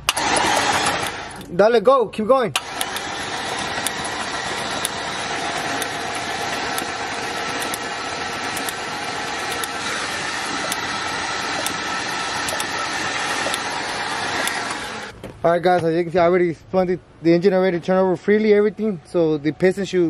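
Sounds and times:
starter motor cranking engine: 0:00.0 - 0:01.6, 0:02.5 - 0:15.2.

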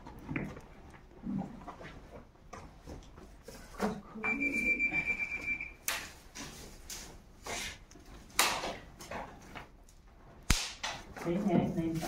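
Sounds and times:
metal detector tone: 0:04.2 - 0:05.8.

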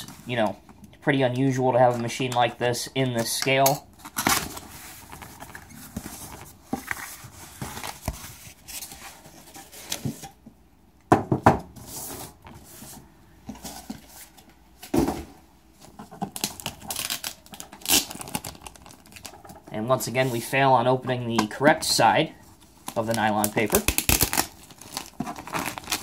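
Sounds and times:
plastic wrap crinkling: 0:15.9 - 0:19.7, 0:22.5 - 0:26.0.

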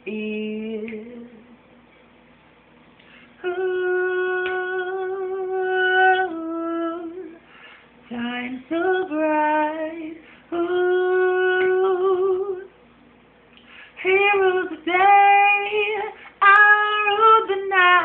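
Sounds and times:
person singing unaccompanied: 0:03.4 - 0:07.4, 0:08.1 - 0:12.7, 0:14.0 - 0:18.0.

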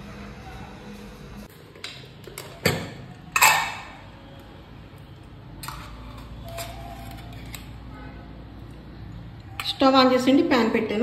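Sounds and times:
kitchen utensils knocking: 0:02.4 - 0:04.0.

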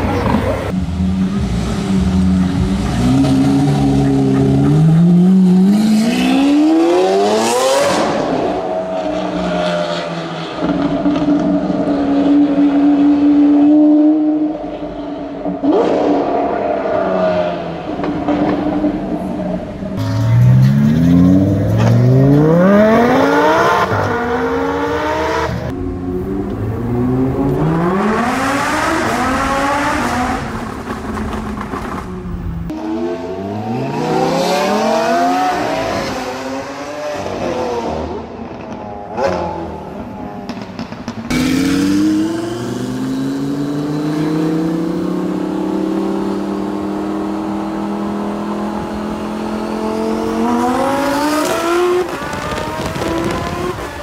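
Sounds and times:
car engine accelerating hard: 0:41.3 - 0:54.0.

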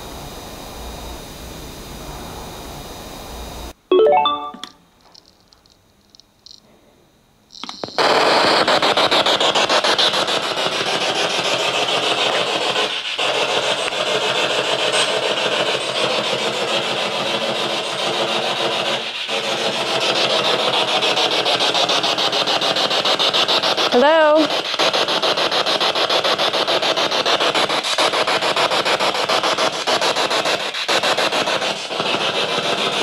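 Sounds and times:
chopped radio static hiss: 0:07.5 - 0:15.6.

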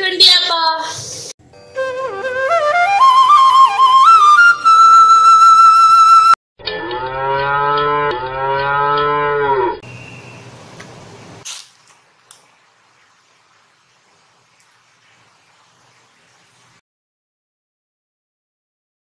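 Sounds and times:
flute melody: 0:01.6 - 0:06.4
cow mooing: 0:06.7 - 0:09.8.

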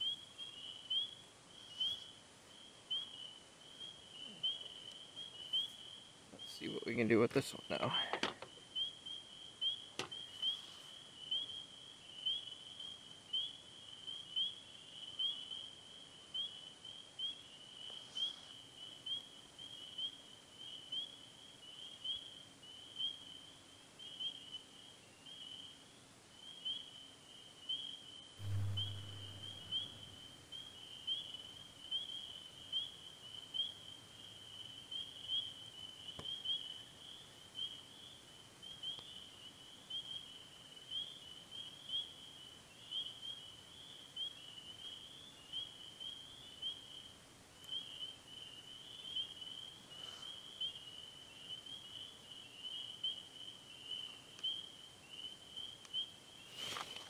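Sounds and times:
low thump: 0:28.4 - 0:30.0.

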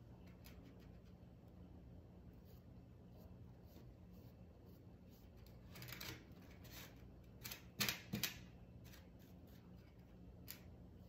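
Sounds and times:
faint steady hum: 0:00.0 - 0:11.0
paintbrush strokes on carving: 0:02.1 - 0:05.6.

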